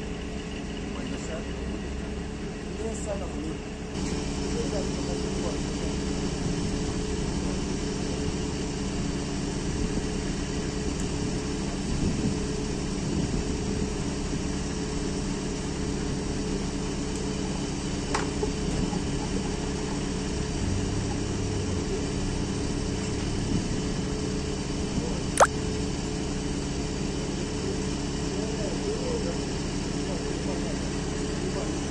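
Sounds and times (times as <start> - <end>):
diesel engine idling: 13.6 - 25.1.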